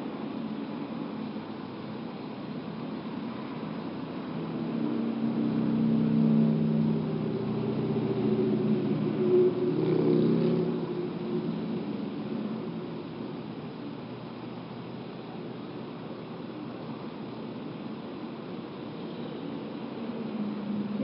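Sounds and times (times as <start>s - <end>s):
vehicle engine humming: 0.0s - 21.0s.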